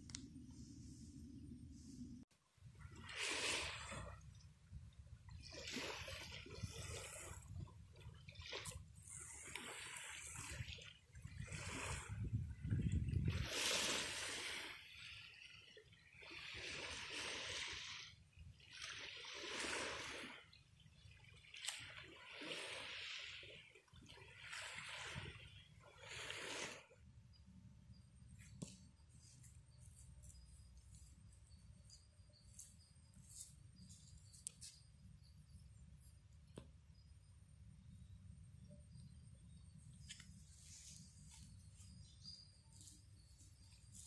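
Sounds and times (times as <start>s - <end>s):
waves washing onto beach: 2.9s - 4.2s, 5.4s - 27.0s.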